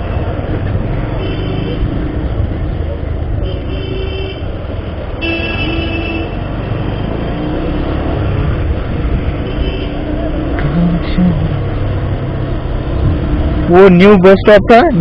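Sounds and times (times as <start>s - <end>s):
wind and road noise: 0.0s - 15.0s
vehicle horn: 1.2s - 1.8s, 3.4s - 4.5s, 5.2s - 6.8s, 9.4s - 10.0s.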